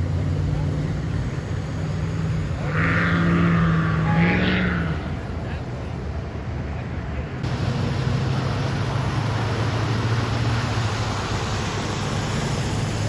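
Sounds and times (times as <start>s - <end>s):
low engine hum: 0.0s - 13.0s
water rushing and spraying: 0.0s - 13.0s.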